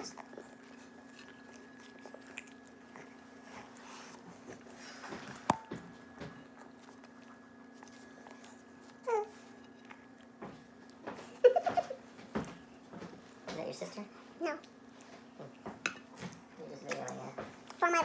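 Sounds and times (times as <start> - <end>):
person chewing: 0.0 - 5.8, 6.4 - 11.0.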